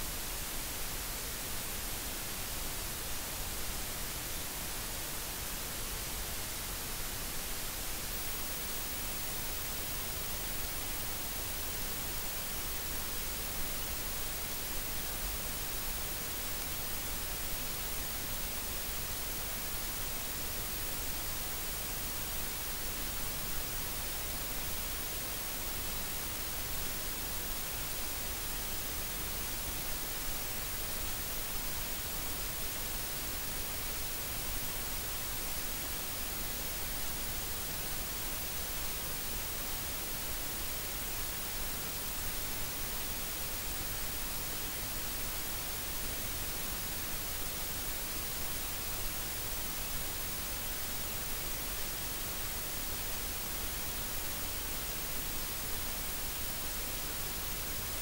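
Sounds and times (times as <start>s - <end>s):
white noise hiss: 0.0s - 58.0s.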